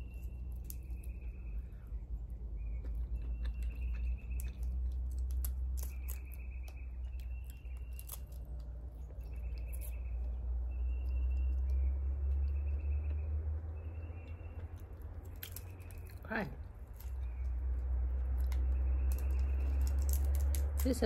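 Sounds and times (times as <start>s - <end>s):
crab shell clicking and crackling: 3.1s - 9.9s, 14.8s - 16.2s, 18.3s - 21.0s.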